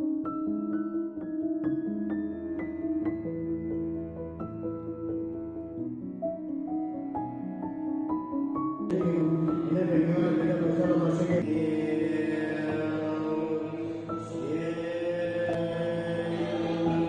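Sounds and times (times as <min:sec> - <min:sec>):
rising piano-like notes: 0:00.0 - 0:17.0
sustained music backing: 0:00.0 - 0:17.0.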